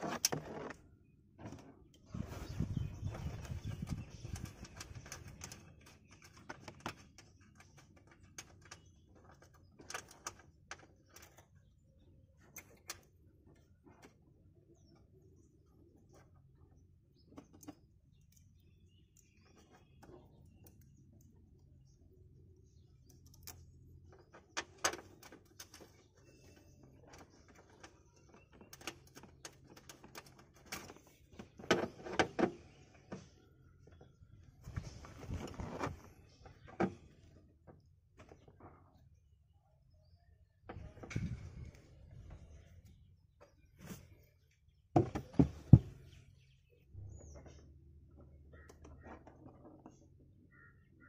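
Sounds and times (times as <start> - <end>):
wire clicks and scrapes: 0.0 - 11.6, 34.6 - 37.0
knocks and rustles: 26.9 - 33.4, 44.9 - 46.3.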